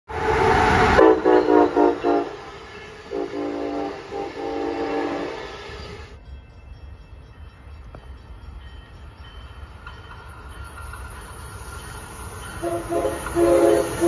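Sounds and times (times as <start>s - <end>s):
train horn blasts: 0.2s - 6.0s, 12.6s - 14.0s.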